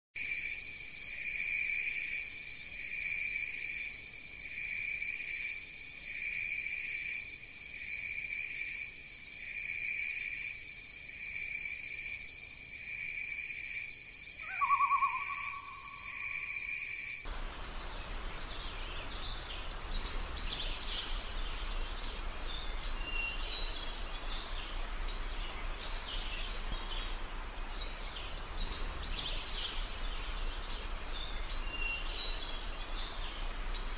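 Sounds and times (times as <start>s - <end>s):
insects chirping: 0.2s - 33.9s
birds chirping: 14.5s - 16.4s, 17.3s - 33.9s.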